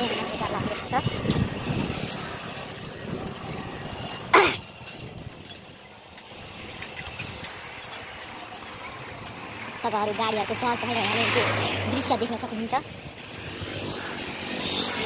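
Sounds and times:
wind noise: 0.0s - 7.7s
road noise: 0.0s - 15.0s
person coughing: 4.3s - 4.6s.

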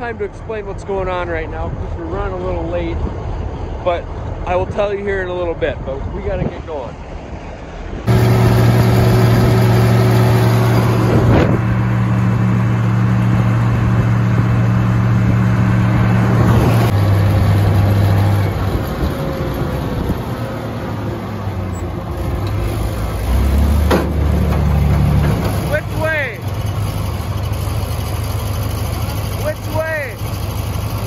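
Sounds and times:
tractor engine running: 8.0s - 31.0s.

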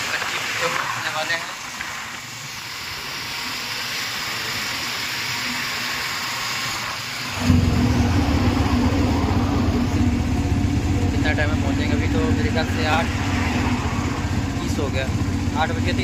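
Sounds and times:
auto-rickshaw engine drone: 0.0s - 16.0s
wind and road noise: 7.3s - 16.0s.

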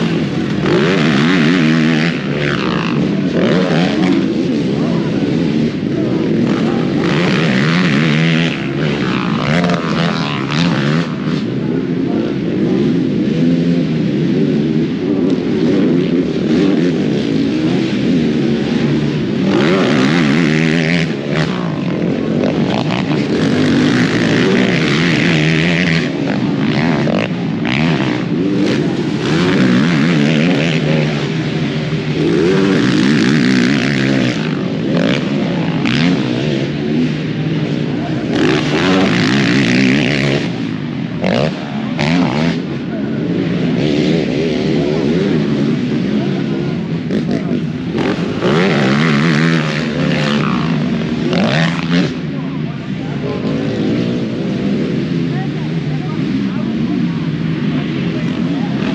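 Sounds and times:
quad engines revving: 0.0s - 58.9s.

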